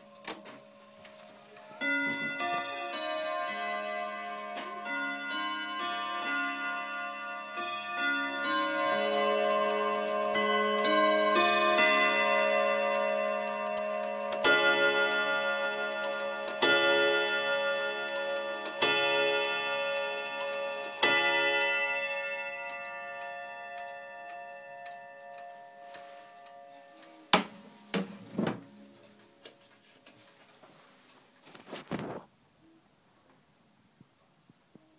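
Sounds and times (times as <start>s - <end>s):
chime melody ringing: 0.7s - 28.0s.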